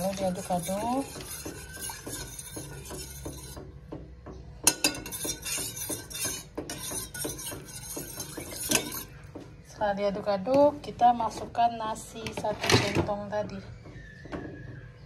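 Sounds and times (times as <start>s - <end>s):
metal spoon clinking in steel pot: 0.0s - 3.6s, 4.6s - 9.1s.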